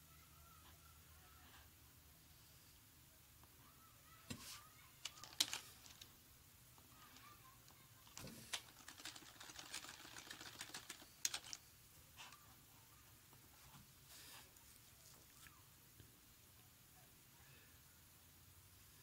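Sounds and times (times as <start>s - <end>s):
faint typing on keyboard: 4.9s - 6.2s, 6.8s - 12.6s.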